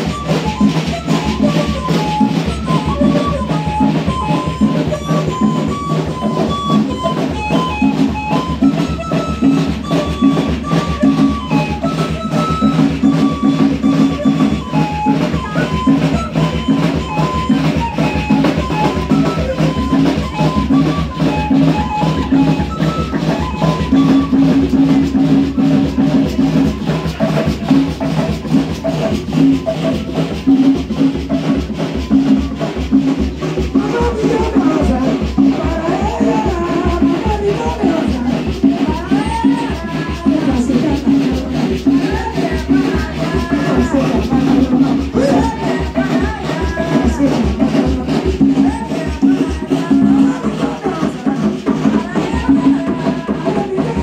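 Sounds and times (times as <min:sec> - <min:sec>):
dance music with fast drumming: 0:23.4 - 0:54.0.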